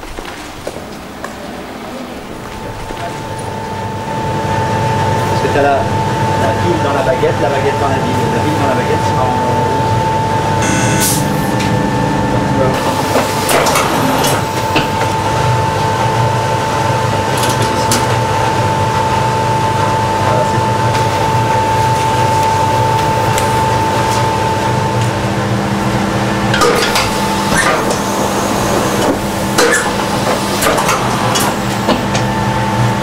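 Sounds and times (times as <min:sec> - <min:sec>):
printing press hum: 0:00.0 - 0:33.0
machine whine: 0:01.1 - 0:33.0
machine clacks: 0:12.8 - 0:15.2, 0:26.5 - 0:32.3.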